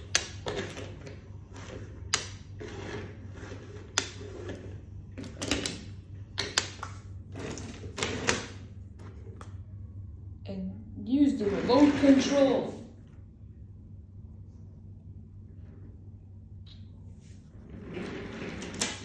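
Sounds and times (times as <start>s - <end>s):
toy wheels scraping and rolling: 0.0s - 5.8s, 7.3s - 8.6s, 11.3s - 12.6s, 17.6s - 19.0s
steady low hum: 0.0s - 19.0s.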